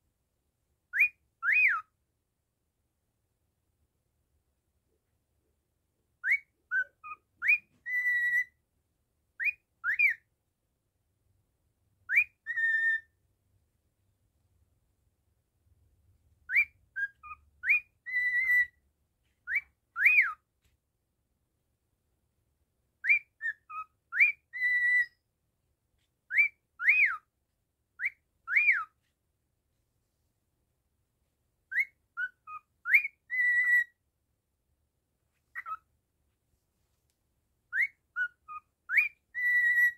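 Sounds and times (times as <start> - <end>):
cockatiel whistling: 0.9 - 1.9, 6.2 - 8.6, 9.4 - 10.3, 12.0 - 13.2, 16.5 - 18.8, 19.4 - 20.4, 23.0 - 25.2, 26.3 - 27.3, 28.0 - 29.0, 31.7 - 34.0, 35.5 - 35.9, 37.7 - 39.9.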